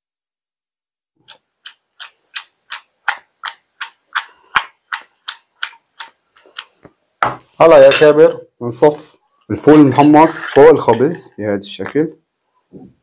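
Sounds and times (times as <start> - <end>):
beans clicking in a steel pot: 1.2 - 6.7.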